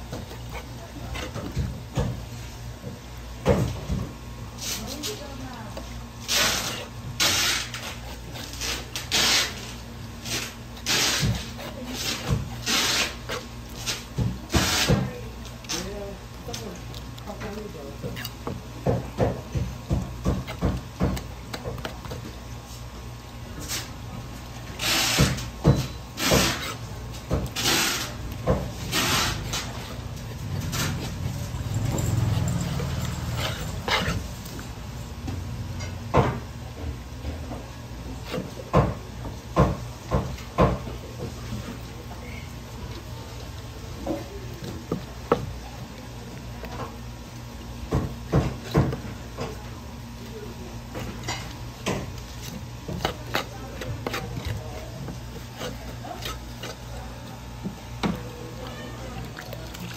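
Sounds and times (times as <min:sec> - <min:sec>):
knife scraping on cutting board: 0:06.2 - 0:15.8, 0:24.8 - 0:30.0, 0:31.8 - 0:34.7, 0:38.2 - 0:38.6, 0:51.0 - 0:57.2.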